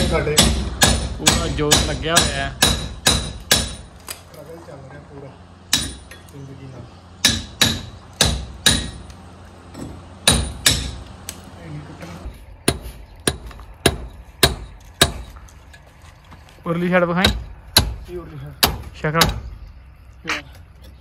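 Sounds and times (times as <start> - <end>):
hammer striking chisel into wall: 0.0 - 3.9, 5.7 - 6.2, 7.2 - 9.1, 9.8 - 11.0, 12.6 - 15.4, 17.1 - 19.5.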